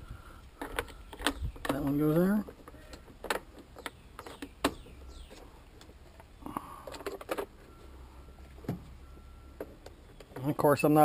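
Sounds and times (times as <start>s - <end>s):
light plastic knocks and clatters: 0.6s - 7.5s.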